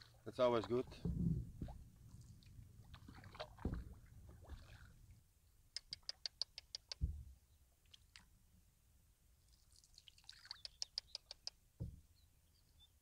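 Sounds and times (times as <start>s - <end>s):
low thump: 0.9s - 1.8s, 3.6s - 4.1s, 7.0s - 7.4s, 11.8s - 12.1s
sharp high ticks: 5.8s - 7.0s, 10.5s - 11.6s
wooden paddle knocks: 11.8s - 12.1s.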